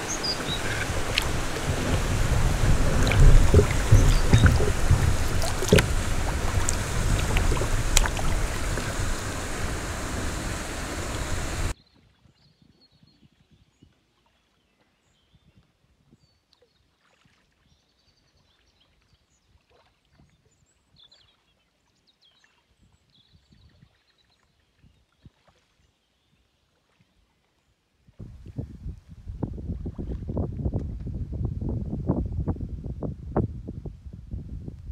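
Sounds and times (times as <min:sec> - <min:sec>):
faint bird chirps: 0:00.0 - 0:01.6
river water rushing: 0:00.0 - 0:11.7.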